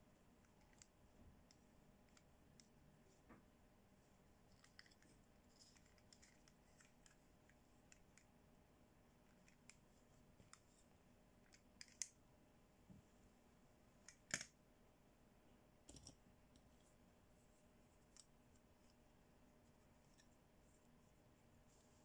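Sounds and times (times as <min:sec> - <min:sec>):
faint plastic toy clicks: 0:00.4 - 0:02.8, 0:04.5 - 0:08.4, 0:09.2 - 0:09.8, 0:11.4 - 0:12.2, 0:14.0 - 0:14.6.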